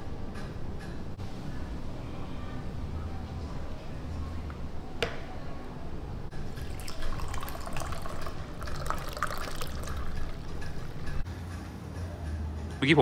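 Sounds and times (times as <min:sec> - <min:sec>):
drink pouring and splashing: 0:06.3 - 0:11.2.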